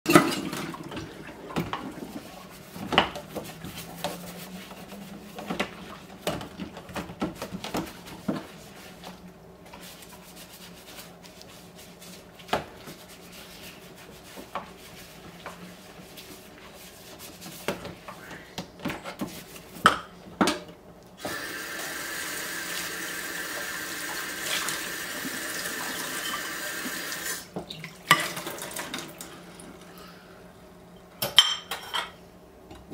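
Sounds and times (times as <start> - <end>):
kitchen tap running: 21.2 - 29.9
crockery clinking in a sink: 26.1 - 26.6, 31.2 - 32.2.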